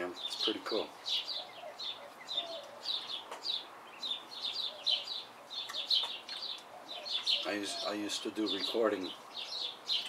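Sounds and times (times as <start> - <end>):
birds chirping: 0.0 - 10.0.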